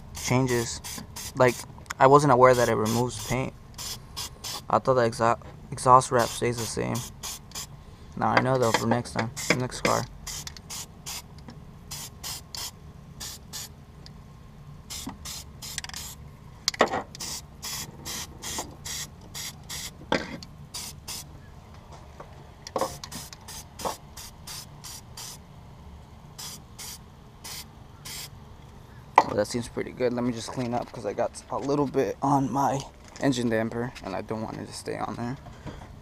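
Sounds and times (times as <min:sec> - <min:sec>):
aerosol spray hissing: 0:00.1 - 0:01.6, 0:02.5 - 0:04.7, 0:06.2 - 0:07.7, 0:10.3 - 0:11.3, 0:11.9 - 0:13.7, 0:14.9 - 0:16.2, 0:17.2 - 0:20.0, 0:20.7 - 0:21.3, 0:22.8 - 0:25.4, 0:26.4 - 0:28.3.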